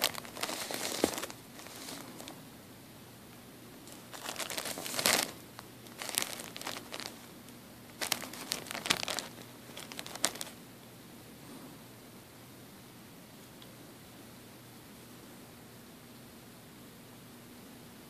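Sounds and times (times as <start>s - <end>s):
plastic bottle crinkling: 0.0s - 2.4s, 3.9s - 7.3s, 7.9s - 10.6s.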